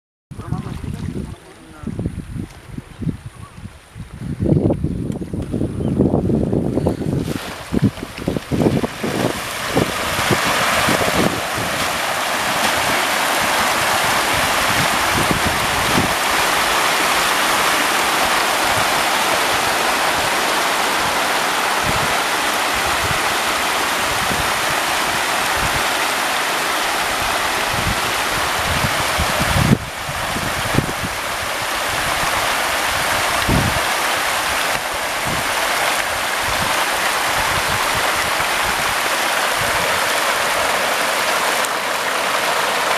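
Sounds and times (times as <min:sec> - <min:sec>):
fish thrashing and splashing water: 0:07.2 - 0:29.6.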